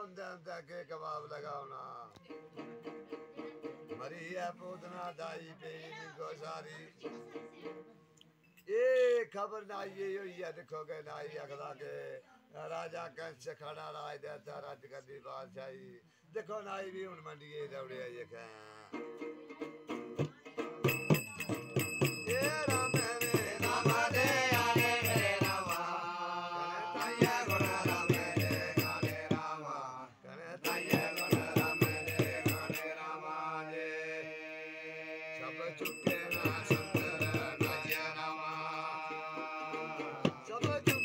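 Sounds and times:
man singing in chanting style: 0.0 - 2.1, 4.0 - 6.9, 8.7 - 18.9, 20.9 - 41.0
strummed stringed instrument: 2.2 - 4.5, 18.8 - 29.4, 35.4 - 41.0
jingling bells: 20.8 - 26.0, 27.0 - 29.4, 30.6 - 33.1, 35.8 - 38.6, 40.6 - 41.0.

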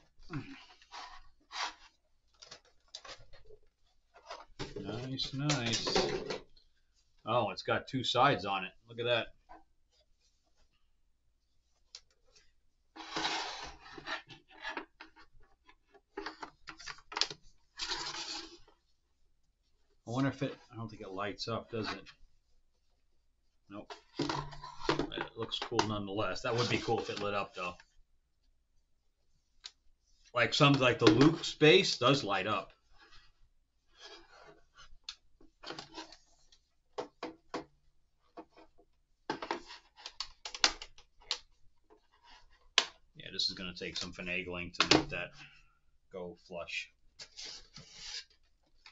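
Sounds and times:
plastic parts rubbing and scraping: 0.0 - 7.2, 11.6 - 19.0, 23.7 - 28.0, 29.4 - 37.6, 47.2 - 48.9
plastic parts scraping: 13.0 - 18.8.

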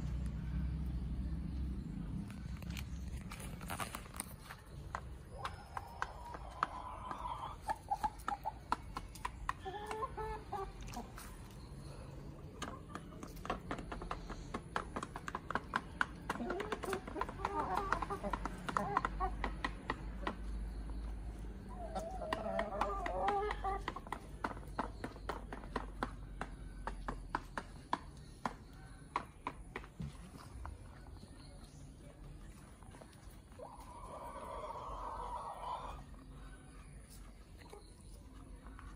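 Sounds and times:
chickens pecking on ground: 0.0 - 38.9
hens clucking: 4.1 - 38.9.

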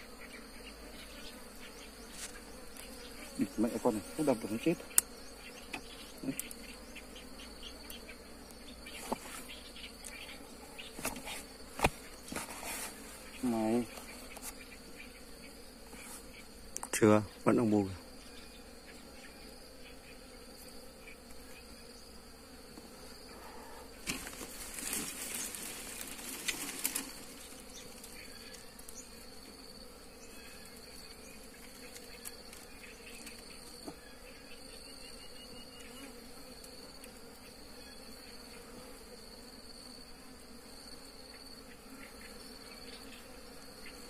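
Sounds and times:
bees buzzing: 0.0 - 44.0
rustling and crackling: 10.9 - 14.6, 24.0 - 28.2.

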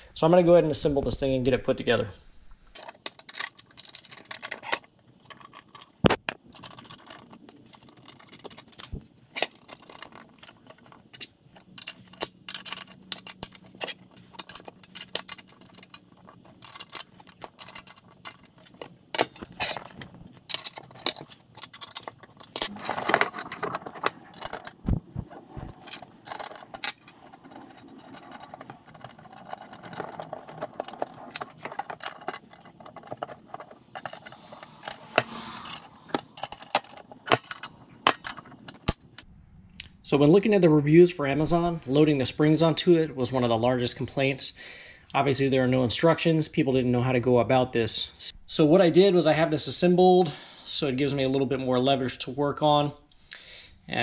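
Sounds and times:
steel hinge parts clinking: 2.8 - 39.2.

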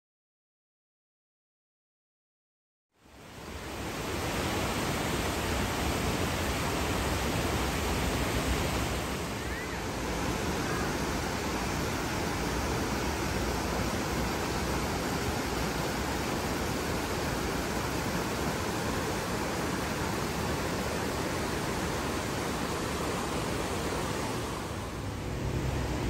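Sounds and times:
white-water rapids rushing: 3.2 - 26.0.

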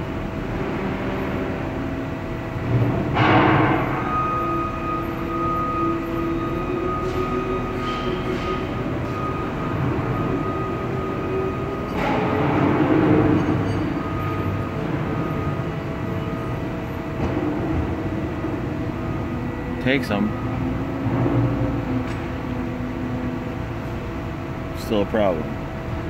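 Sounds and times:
whining machinery: 0.0 - 26.0.

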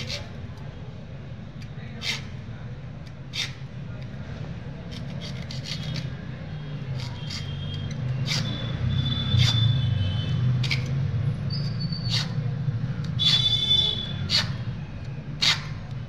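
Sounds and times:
hacksaw cutting metal: 2.0 - 2.4, 3.3 - 3.6, 4.9 - 6.2, 7.0 - 8.6, 9.3 - 9.8, 10.6 - 11.0, 11.6 - 12.4, 13.1 - 14.6, 15.4 - 15.8.

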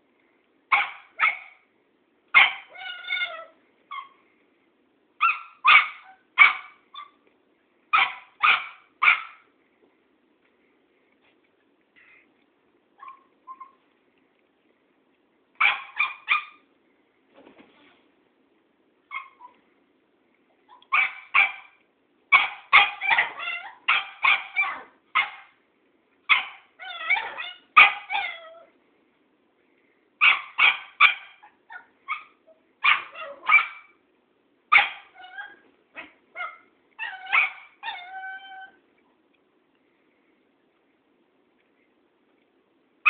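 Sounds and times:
puppy barking high yaps: 0.7 - 1.6, 2.3 - 4.2, 5.2 - 7.2, 7.9 - 9.5, 15.6 - 16.7, 19.1 - 19.6, 20.7 - 25.6, 26.3 - 28.7, 30.2 - 34.0, 34.7 - 38.8
puppy whining: 2.4 - 4.2, 13.0 - 13.8, 19.1 - 19.6, 22.8 - 24.9, 26.3 - 28.7, 31.1 - 33.9, 34.8 - 38.8.

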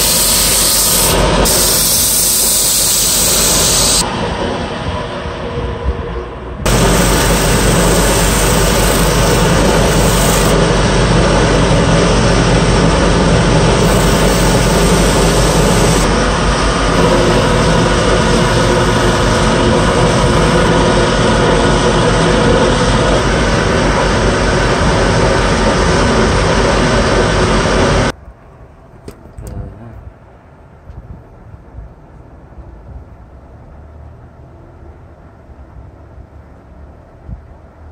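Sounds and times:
wood lathe running: 6.7 - 11.4, 12.3 - 16.3.

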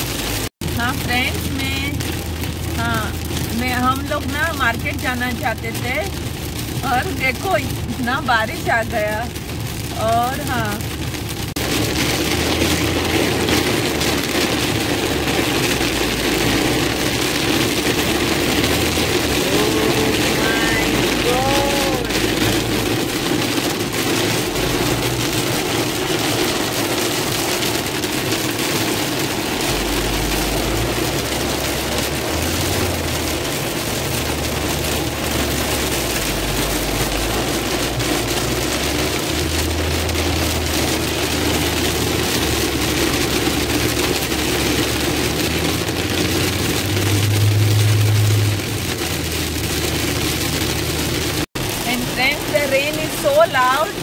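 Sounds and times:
low rumble: 0.0 - 52.7
heavy rain drumming on car: 0.0 - 54.0
road and engine noise: 0.0 - 54.0.

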